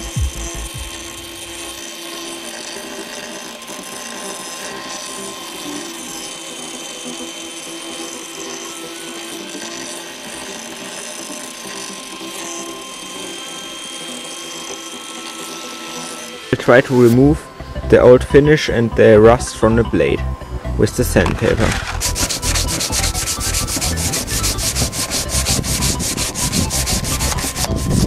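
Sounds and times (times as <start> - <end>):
angle grinder grinding steel: 0.0 - 20.0, 20.8 - 28.0.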